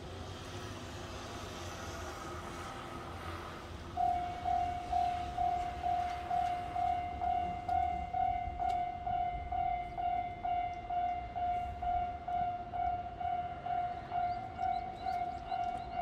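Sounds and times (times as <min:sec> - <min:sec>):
level-crossing warning bell: 0:03.8 - 0:16.0.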